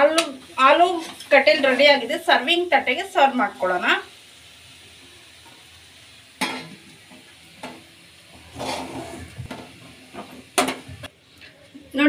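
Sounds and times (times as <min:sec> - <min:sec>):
metal spatula scraping a pan: 0:00.8 - 0:01.9, 0:06.4 - 0:10.9.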